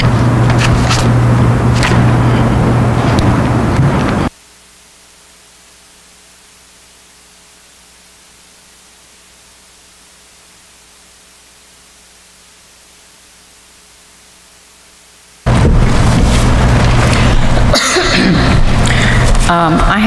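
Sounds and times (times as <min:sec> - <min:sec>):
loud noise: 0:00.0 - 0:04.3, 0:15.4 - 0:20.0
steady hiss with faint hum: 0:00.0 - 0:20.0.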